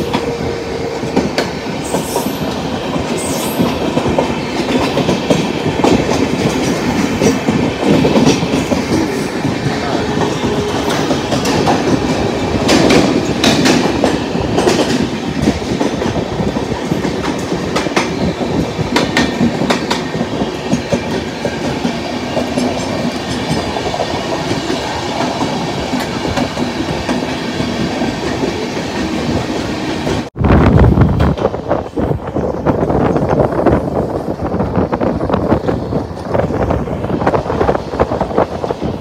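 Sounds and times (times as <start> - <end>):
steady loud train rumble: 0.0 - 39.0
train wheels clattering over rail joints: 1.0 - 30.3.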